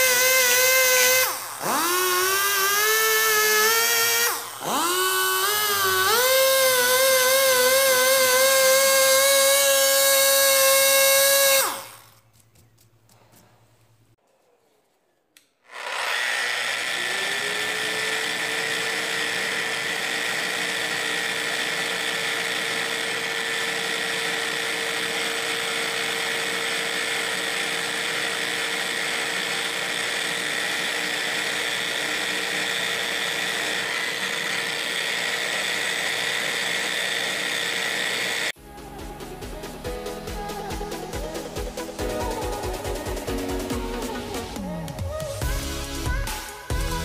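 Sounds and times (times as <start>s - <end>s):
electric orbital sander running: 0.0s - 12.2s, 15.7s - 38.6s.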